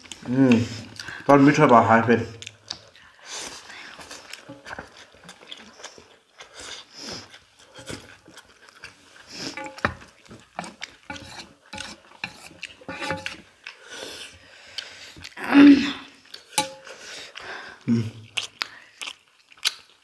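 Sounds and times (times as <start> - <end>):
chopsticks clicking on metal plates: 9.6 - 10.0, 16.6 - 16.9.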